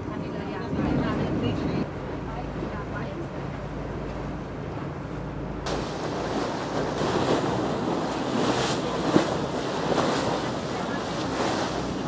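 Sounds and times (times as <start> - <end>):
boat engine low hum: 0.0 - 12.0
water rushing past boat hull: 0.0 - 12.0
wind buffeting microphone: 0.0 - 12.0
sharp water slap: 5.7 - 12.0.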